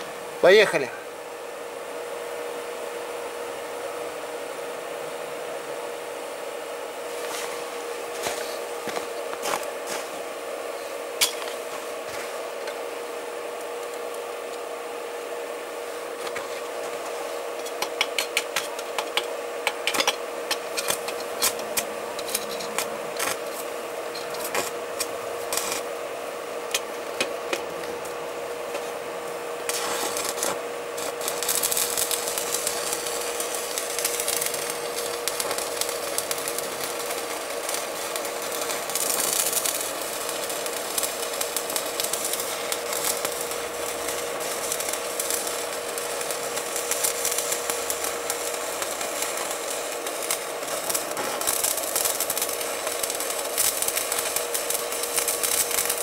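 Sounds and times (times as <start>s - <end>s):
electrical hum: 0.0s - 56.0s
electrical crackling and sizzling: 16.2s - 26.0s, 26.6s - 56.0s.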